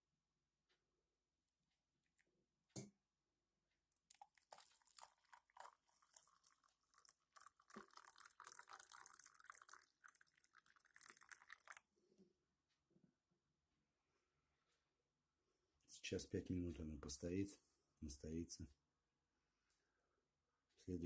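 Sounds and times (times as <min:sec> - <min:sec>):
boiling water pouring into a mug: 0:03.9 - 0:11.9.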